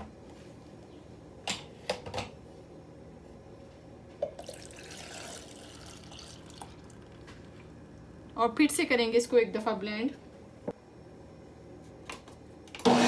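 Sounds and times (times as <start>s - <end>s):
milk pouring into blender jar: 4.4s - 7.3s.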